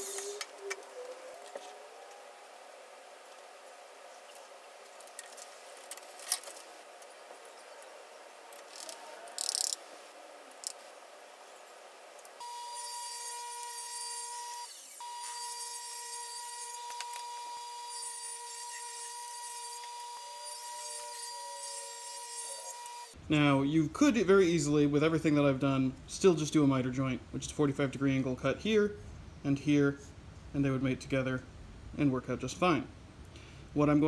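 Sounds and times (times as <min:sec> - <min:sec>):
table saw whining: 0:12.4 - 0:23.2.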